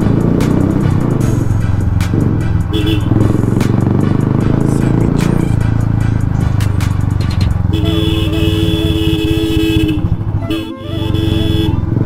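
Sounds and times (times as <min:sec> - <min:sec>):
motorcycle engine running: 0:00.0 - 0:12.0
two-tone vehicle horn: 0:02.7 - 0:03.5, 0:07.6 - 0:12.0.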